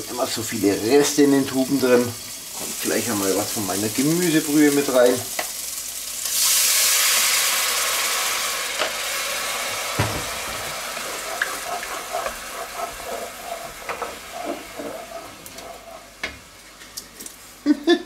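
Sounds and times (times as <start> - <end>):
broth hissing in hot pot: 0.0 - 17.5
sizzling with small pops: 0.0 - 17.5
single knock: 10.0 - 10.4.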